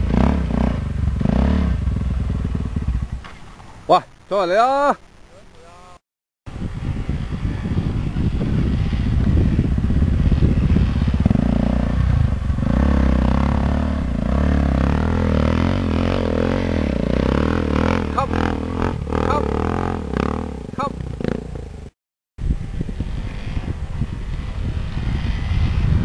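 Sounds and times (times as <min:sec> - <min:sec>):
motorcycle engine revving: 0:00.0 - 0:03.7, 0:06.5 - 0:26.0.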